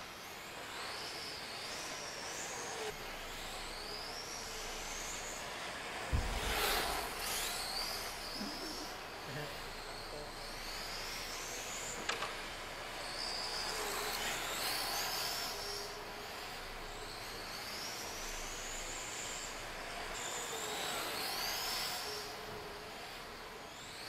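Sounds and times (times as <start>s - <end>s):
electric motor whining: 0.2s - 24.0s.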